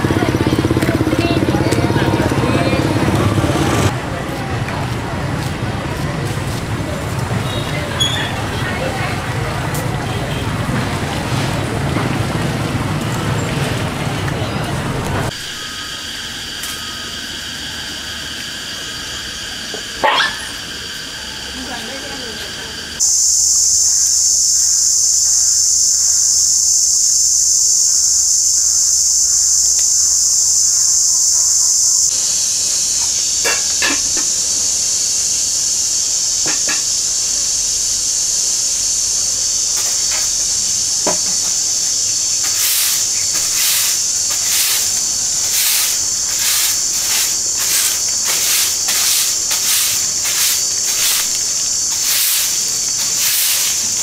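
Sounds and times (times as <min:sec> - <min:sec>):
cicadas chorus: 0:00.0 - 0:54.0
broom sweeping cement floor: 0:23.0 - 0:54.0.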